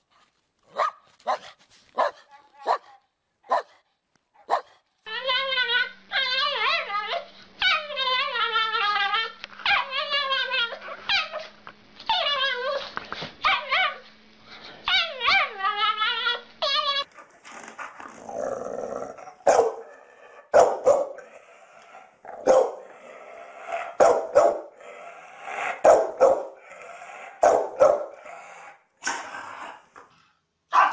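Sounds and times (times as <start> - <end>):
larger dog barking: 0.7 - 3.8, 4.4 - 4.8, 19.4 - 19.9, 20.5 - 21.3, 22.4 - 22.9, 24.0 - 24.7, 25.8 - 26.6, 27.4 - 28.2.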